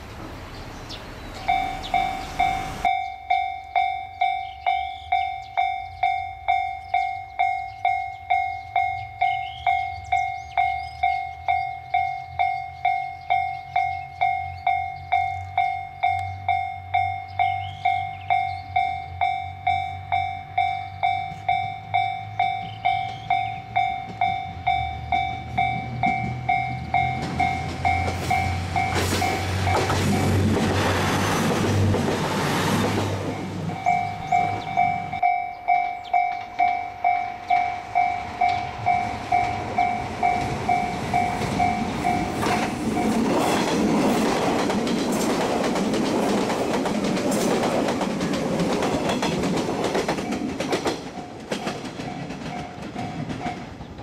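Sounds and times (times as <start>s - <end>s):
diesel railcar engine: 0.0s - 54.0s
level-crossing alarm ringing: 1.5s - 30.6s, 33.2s - 43.6s
train wheels clattering on rails: 17.4s - 54.0s.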